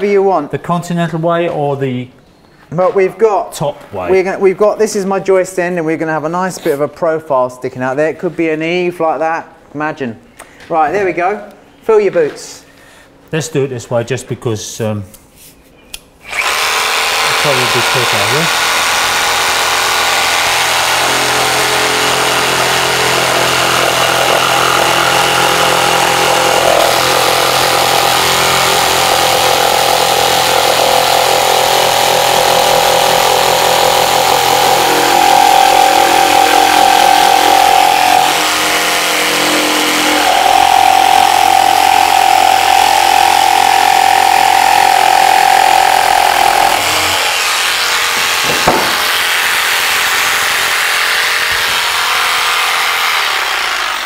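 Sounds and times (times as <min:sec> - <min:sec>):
jigsaw cutting wood: 0:16.2 - 0:54.0.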